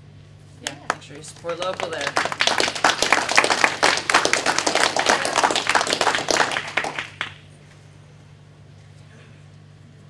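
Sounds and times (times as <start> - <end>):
audience applauding: 0.9 - 7.4.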